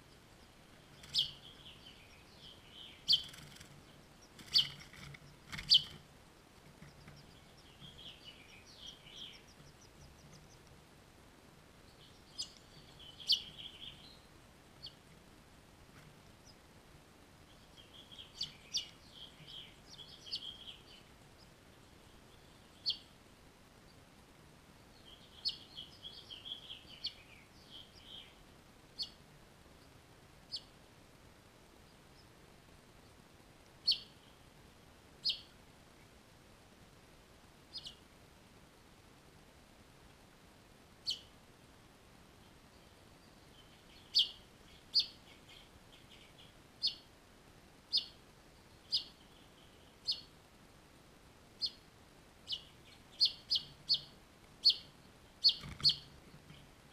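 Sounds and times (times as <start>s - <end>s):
finches chirping: 0.0s - 10.7s, 11.8s - 15.0s, 17.4s - 23.2s, 24.9s - 28.4s, 29.0s - 29.2s, 33.8s - 34.4s, 35.2s - 35.5s, 37.7s - 38.0s, 41.0s - 41.3s, 42.4s - 47.1s, 47.9s - 50.3s, 51.6s - 56.9s.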